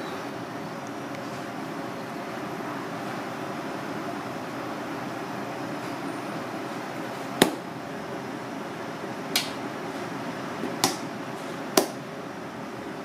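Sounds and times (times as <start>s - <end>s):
steady background noise: 0.0s - 13.0s
sharp knocks of hands and utensils: 10.8s - 11.0s.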